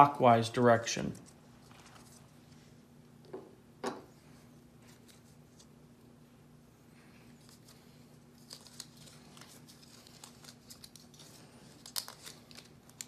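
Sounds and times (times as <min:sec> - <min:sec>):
faint steady hum: 0:00.0 - 0:13.0
thread tape crinkling: 0:07.3 - 0:13.0.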